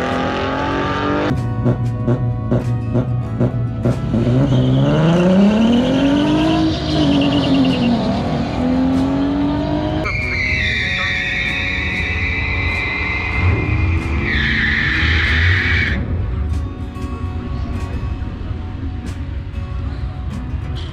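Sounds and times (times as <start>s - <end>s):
car engines revving: 0.0s - 16.7s
background music with beat: 0.0s - 20.9s.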